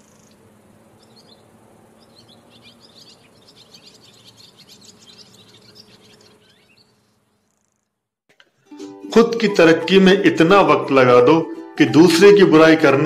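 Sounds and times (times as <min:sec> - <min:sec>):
small birds chirping: 0:00.0 - 0:08.0.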